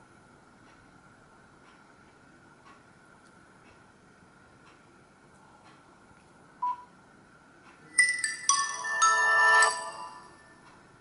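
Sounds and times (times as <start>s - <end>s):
phone start-up chime: 8.0s - 10.6s.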